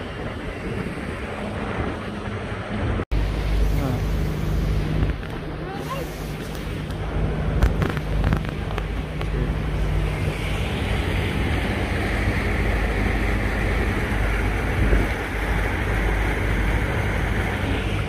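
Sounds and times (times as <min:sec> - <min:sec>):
boat engine running: 0:00.0 - 0:18.0
rushing propeller wake: 0:00.0 - 0:18.0
wind buffeting microphone: 0:06.3 - 0:18.0.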